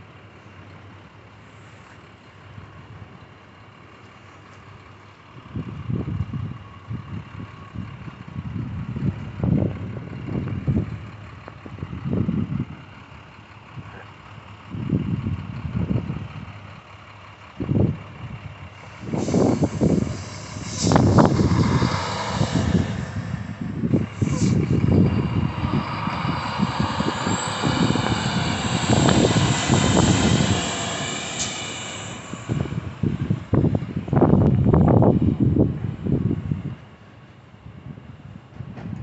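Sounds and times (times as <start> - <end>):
snowplow trucks running: 0.0 - 39.0
wind buffeting microphone: 5.5 - 12.9, 14.7 - 16.6, 17.6 - 36.9
hissing rush: 18.7 - 34.4.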